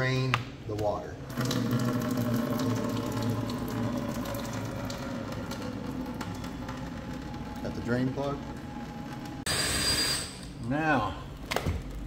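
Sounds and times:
water draining rushing flow: 0:01.3 - 0:06.7.

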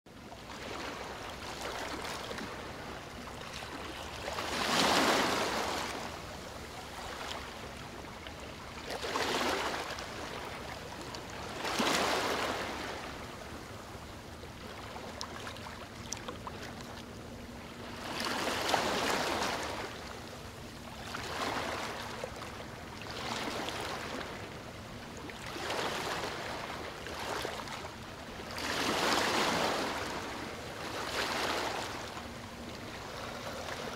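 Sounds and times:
ocean waves washing in: 0:00.4 - 0:16.0.

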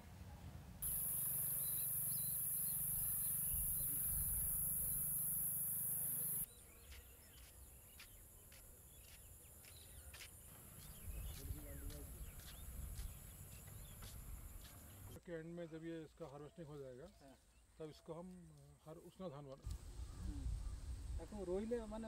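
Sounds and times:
high-pitched insect drone: 0:00.8 - 0:06.5.

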